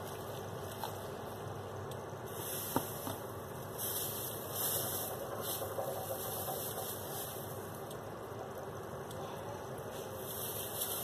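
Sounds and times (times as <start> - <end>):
background hum: 0.0 - 11.0
plastic bag crinkling: 10.2 - 11.0.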